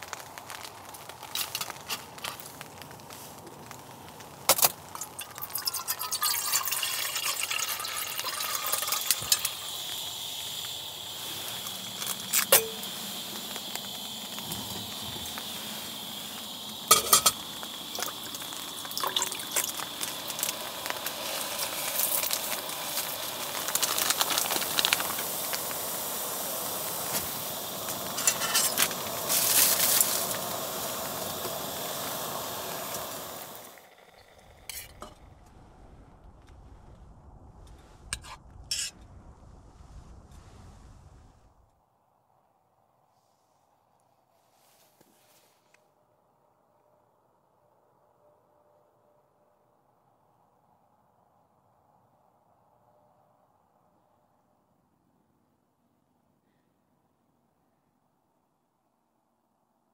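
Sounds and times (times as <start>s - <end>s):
food sizzling in pan: 4.9s - 35.2s.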